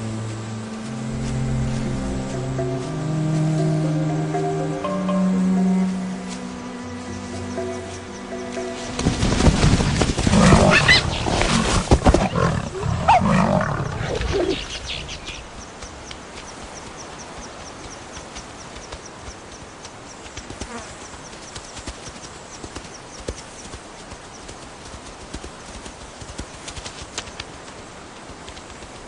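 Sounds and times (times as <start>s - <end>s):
big cats snarling and growling: 10.2s - 15.3s.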